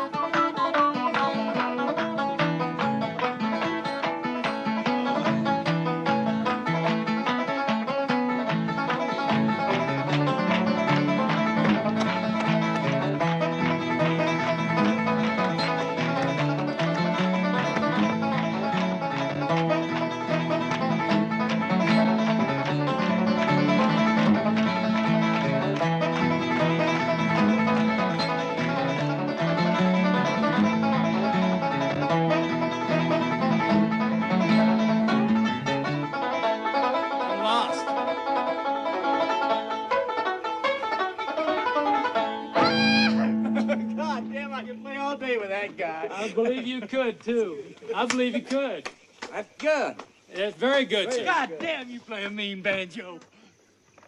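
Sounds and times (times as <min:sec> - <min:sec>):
bluegrass banjo and guitar music: 0:00.0 - 0:48.6.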